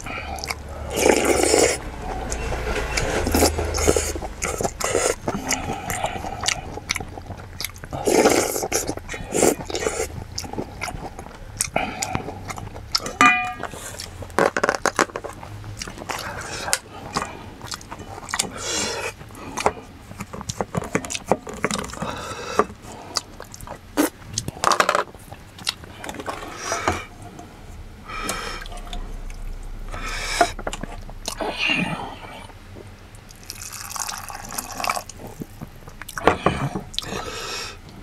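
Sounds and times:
wooden spoon knocking in bowls: 0:13.2 - 0:13.7
stew pouring into bowl: 0:33.3 - 0:35.1.

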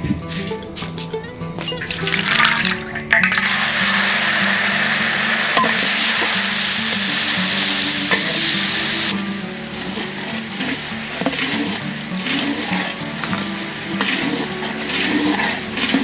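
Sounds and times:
food sizzling in hot oil: 0:01.8 - 0:16.0.

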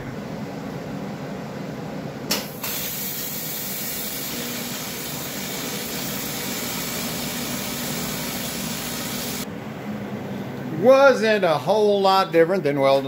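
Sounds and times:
welding arc hissing: 0:02.3 - 0:09.5.

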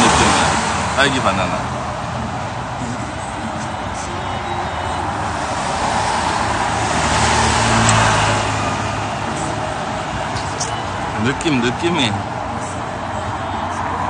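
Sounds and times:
street traffic noise: 0:00.0 - 0:14.0
vehicle passing close by: 0:00.0 - 0:14.0.

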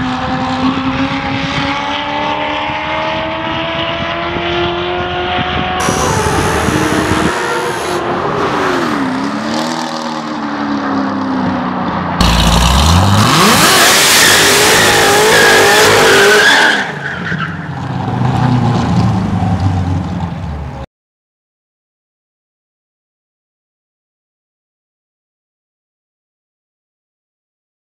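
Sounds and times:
car engine revving: 0:00.0 - 0:11.2, 0:12.2 - 0:17.0.

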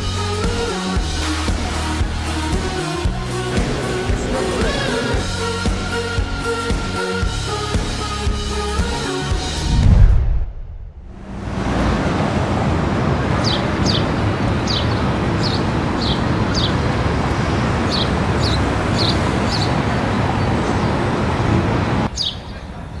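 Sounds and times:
street traffic noise: 0:00.0 - 0:23.0
bird chirping: 0:22.1 - 0:22.7.

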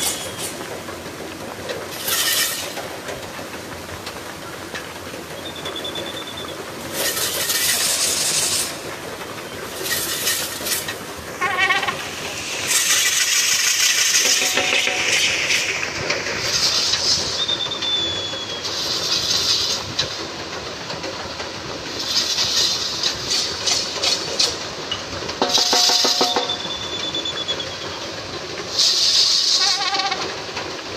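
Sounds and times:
rig rattling clatter: 0:00.0 - 0:30.9
short whistle: 0:17.4 - 0:18.7, 0:26.3 - 0:28.0.

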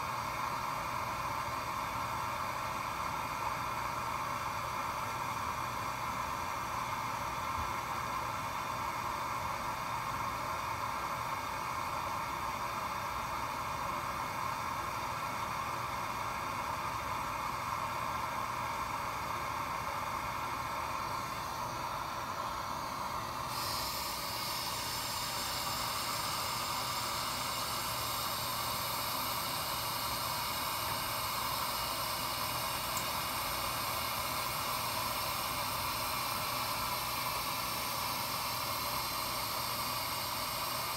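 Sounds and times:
air flow and fans hissing: 0:00.0 - 0:40.9
bright high hiss: 0:22.1 - 0:40.9.

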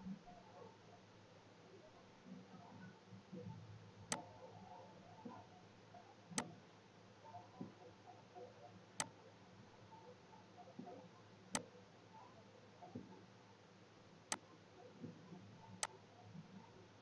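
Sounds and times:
computer mouse clicks: 0:04.1 - 0:04.3.

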